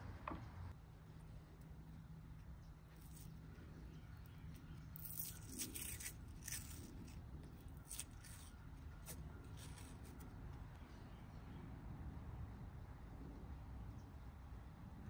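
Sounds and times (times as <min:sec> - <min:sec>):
low steady hum: 0:00.0 - 0:15.0
strip peeling crackles: 0:04.9 - 0:10.3.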